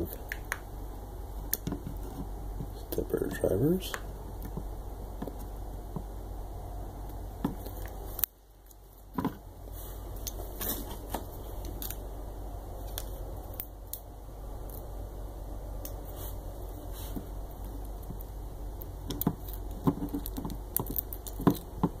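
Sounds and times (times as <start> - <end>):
steady low hum: 0.0 - 22.0
clicks and crinkles of handling parts: 10.1 - 12.0.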